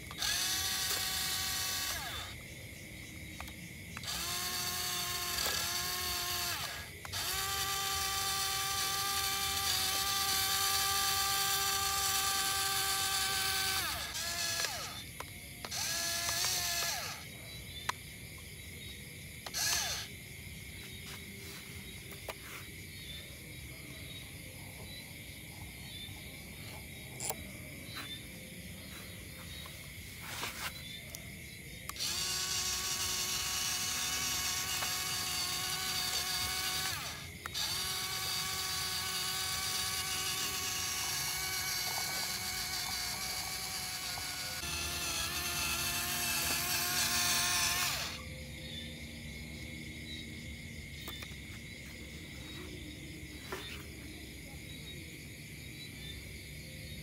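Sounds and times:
toy electric motor whining: 0.0s - 18.0s, 19.4s - 20.2s, 28.2s - 30.8s, 31.9s - 48.8s.

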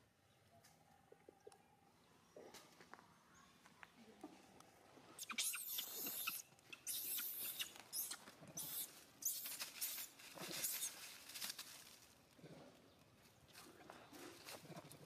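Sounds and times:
baby monkey screaming: 5.2s - 9.4s.

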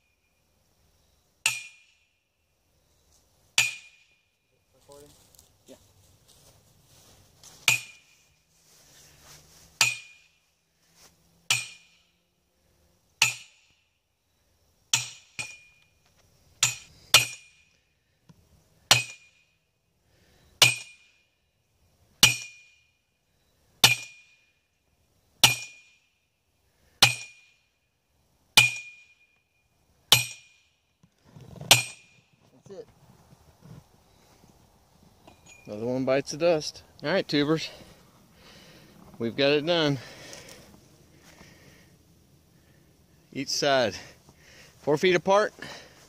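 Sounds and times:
sledgehammer clanging on steel: 1.4s - 2.0s, 3.6s - 4.2s, 7.6s - 8.2s, 9.8s - 10.4s, 11.5s - 12.0s, 13.2s - 13.8s, 14.9s - 15.8s, 16.6s - 17.7s, 20.6s - 21.1s, 30.1s - 30.6s, 31.6s - 32.2s, 35.2s - 35.8s.

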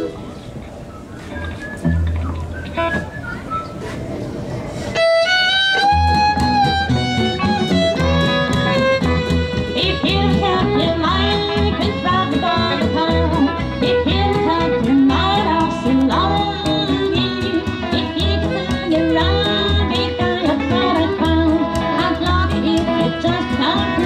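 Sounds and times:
electric guitar rhythm: 1.5s - 3.2s, 4.9s - 24.0s
fiddle playing: 4.9s - 24.0s
upright bass line: 5.8s - 24.0s.

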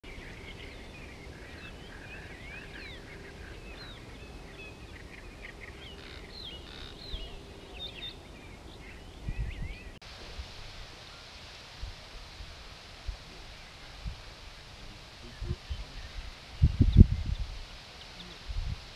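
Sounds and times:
songbirds chirping and whistling: 0.0s - 10.0s, 13.3s - 18.4s
hiss: 10.0s - 18.9s.

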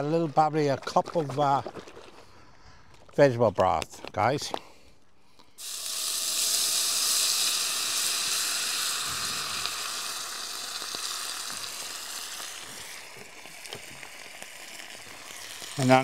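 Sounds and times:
broth sizzling in hot pan: 5.6s - 16.0s.

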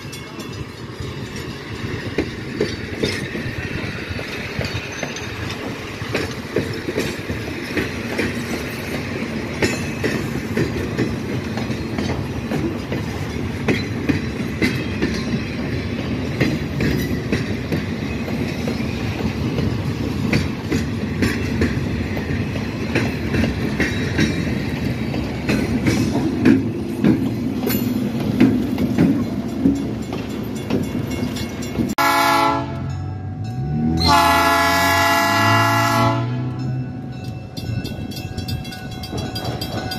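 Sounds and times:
train cars rumbling past: 0.0s - 39.9s
locomotive chime horn: 32.0s - 37.8s.

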